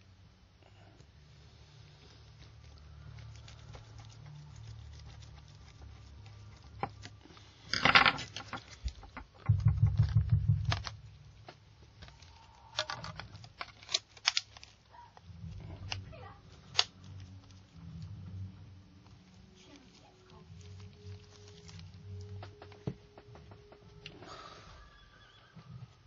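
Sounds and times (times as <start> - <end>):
low rubbing noise: 8.7 - 12.7, 15.3 - 24.8.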